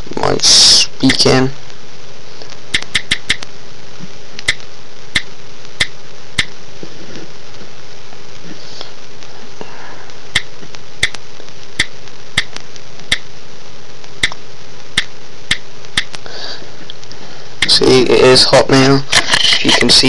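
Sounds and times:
steady background hiss: 0.0s - 20.0s
on-screen keyboard clicks: 2.8s - 3.4s.

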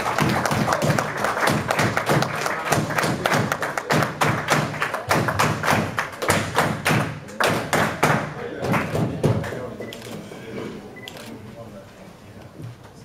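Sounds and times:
people thumping and clapping: 0.0s - 9.7s.

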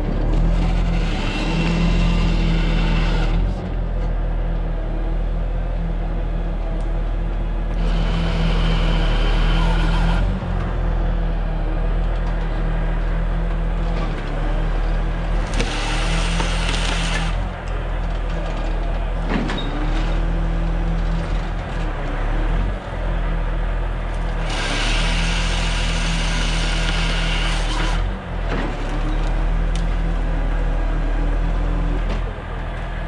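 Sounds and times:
truck engine running: 0.0s - 33.0s
chainsaw cutting wood: 0.4s - 3.5s, 15.4s - 17.4s, 24.4s - 28.1s.

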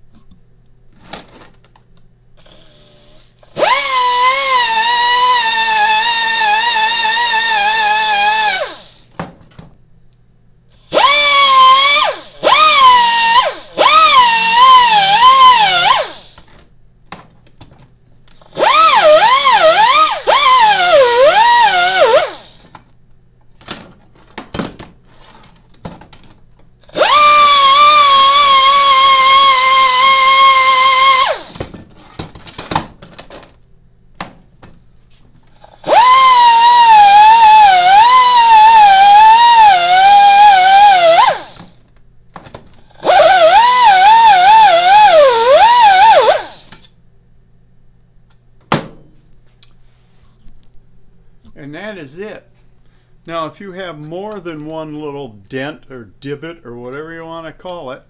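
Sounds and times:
pneumatic die grinder whining: 2.4s - 9.1s, 10.8s - 16.5s, 18.3s - 22.8s, 26.9s - 31.7s, 35.6s - 41.8s, 42.7s - 46.9s.

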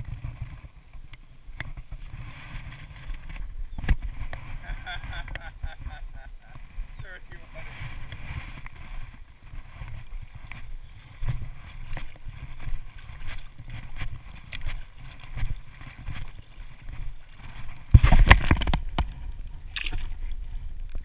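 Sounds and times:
fish splashing in water: 11.2s - 21.0s.

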